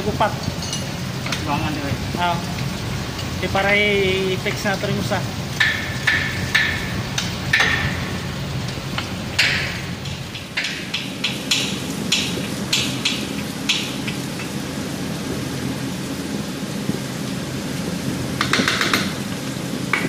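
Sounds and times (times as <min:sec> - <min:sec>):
water spraying from a pipe: 0:00.0 - 0:20.0
wrench clinking on metal: 0:00.4 - 0:01.4.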